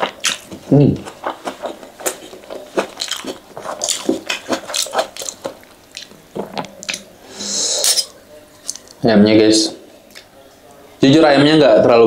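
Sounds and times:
mouth chewing noodles: 0.0s - 9.0s.

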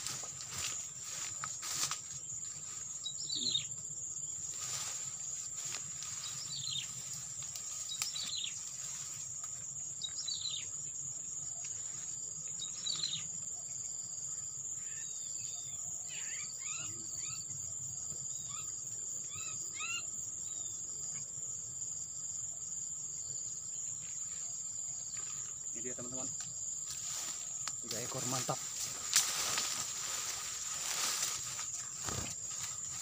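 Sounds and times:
insects trilling: 0.0s - 33.0s
birds calling: 27.9s - 33.0s.

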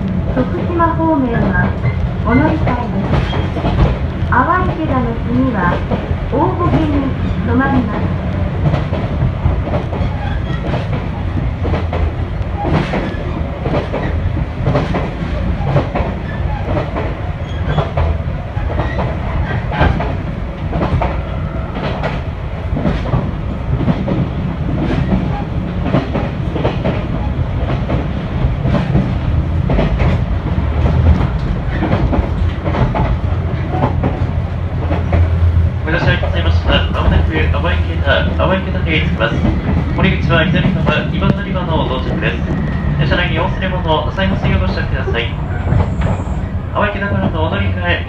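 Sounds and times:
train rumbling: 0.0s - 48.0s
wheels clicking over rail joints: 1.4s - 5.0s, 5.6s - 35.4s.

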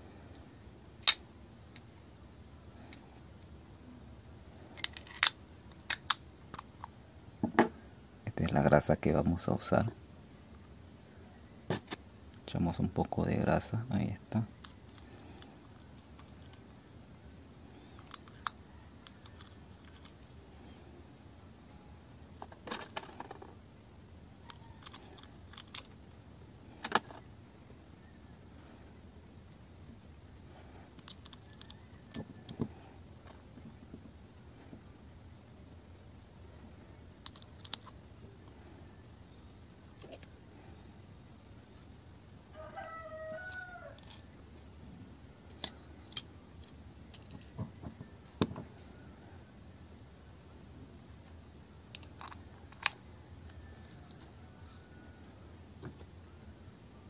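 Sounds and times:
plastic parts clicking and tapping: 17.9s - 20.3s, 22.4s - 23.6s, 24.5s - 26.0s, 26.8s - 27.2s, 30.9s - 34.8s, 37.2s - 38.6s, 45.5s - 48.7s, 51.2s - 54.2s
rooster crowing: 24.4s - 25.2s, 31.5s - 32.6s, 42.5s - 44.2s, 53.1s - 55.5s.

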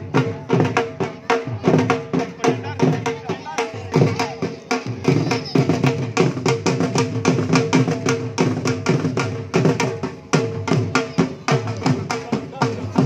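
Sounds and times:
fast dhol drumming: 0.0s - 13.0s.

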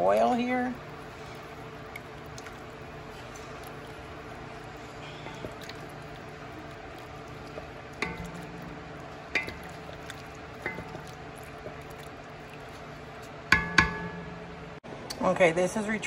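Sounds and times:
spoon stirring sloshing liquid: 0.0s - 14.8s
spoon knocking against pot: 8.0s - 11.2s, 13.5s - 14.6s.

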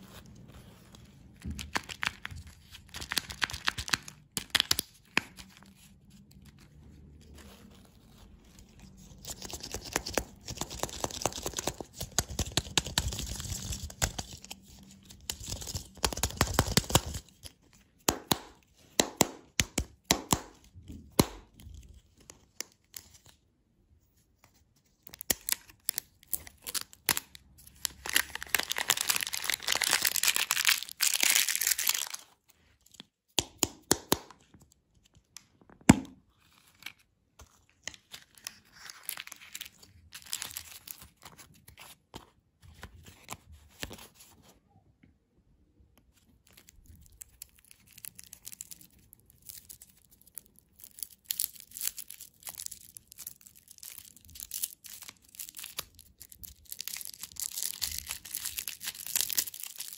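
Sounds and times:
foil wrapper crinkling and tearing: 1.5s - 5.7s, 25.1s - 32.4s, 37.9s - 42.0s, 46.5s - 59.9s.

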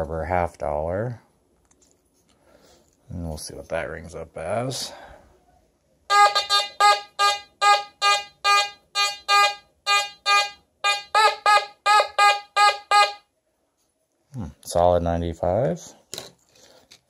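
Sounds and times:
metal detector short beeps: 6.1s - 13.2s.

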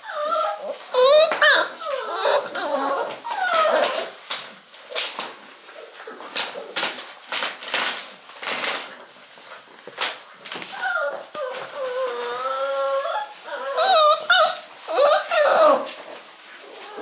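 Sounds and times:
puppies whimpering: 0.0s - 4.2s, 10.6s - 17.0s
paws scuffling on newspaper: 0.0s - 17.0s.

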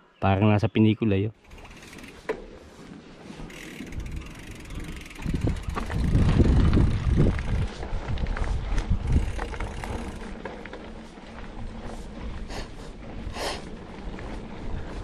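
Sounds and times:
wind buffeting microphone: 3.8s - 15.0s.

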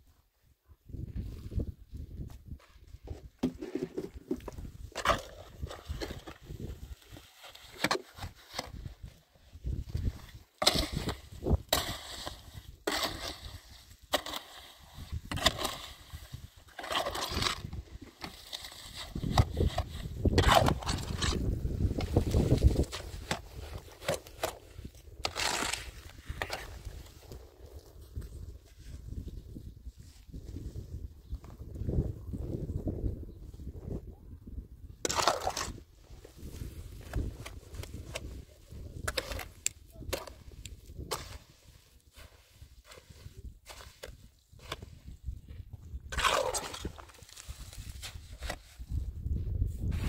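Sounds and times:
shovel scraping gritty mix: 3.4s - 27.1s, 35.0s - 45.3s, 46.0s - 49.0s
shovel scraping cement in wheelbarrow: 10.6s - 24.6s, 25.2s - 26.9s, 46.1s - 48.8s.

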